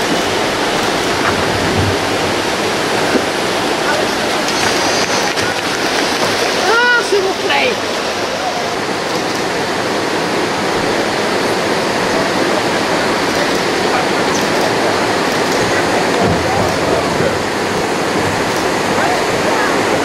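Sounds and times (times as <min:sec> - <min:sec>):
river pouring over weir: 0:00.0 - 0:20.0.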